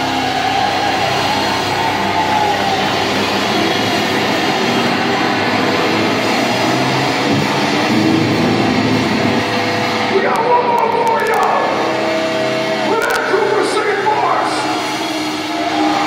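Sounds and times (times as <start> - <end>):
death metal band playing live: 0.0 - 16.0.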